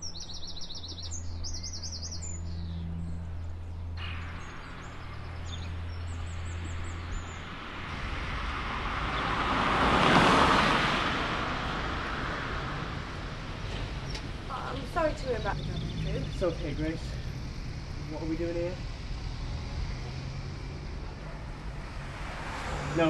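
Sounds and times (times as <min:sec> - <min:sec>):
small birds chirping: 0:00.0 - 0:07.8, 0:12.9 - 0:23.0
vehicle passing by: 0:01.8 - 0:23.0.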